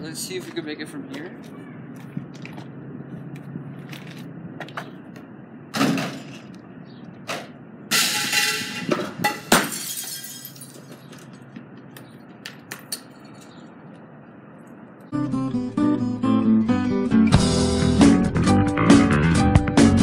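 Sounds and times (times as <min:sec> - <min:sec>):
sharp impact: 0:07.9 - 0:10.0
glass shattering: 0:07.9 - 0:10.9.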